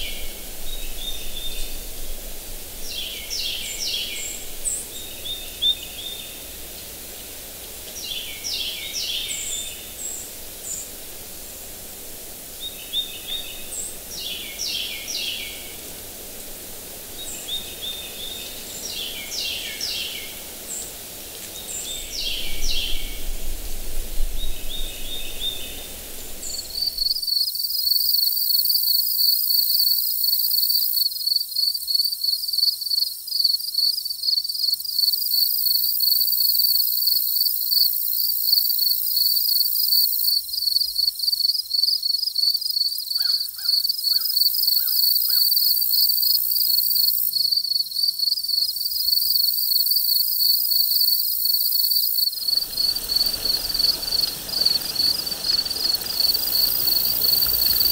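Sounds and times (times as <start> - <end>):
rustling outdoor noise: 0.0 - 57.9
insects trilling: 24.4 - 57.9
crow cawing: 43.2 - 45.5.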